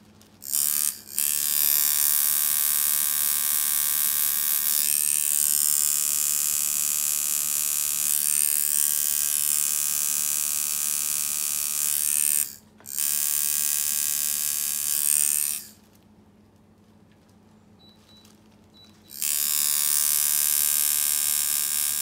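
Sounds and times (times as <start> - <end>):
tattoo machine buzzing: 0.4 - 15.8, 19.1 - 22.0.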